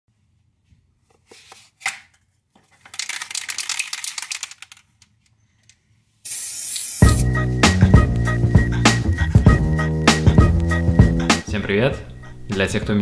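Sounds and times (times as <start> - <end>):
spray can ball rattling: 2.9 - 5.0, 6.3 - 7.2
spray can cap popping off: 6.3 - 7.3
spray hiss: 6.3 - 7.3.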